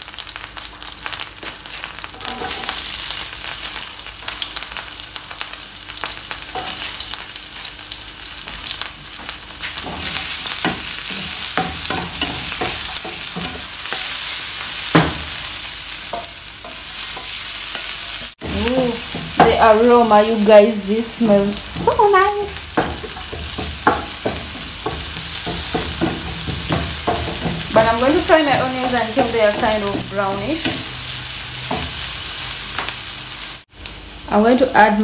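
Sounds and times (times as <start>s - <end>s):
onions sizzling in oil: 0.0s - 35.0s
spatula scraping pan: 2.2s - 2.9s, 21.5s - 31.0s.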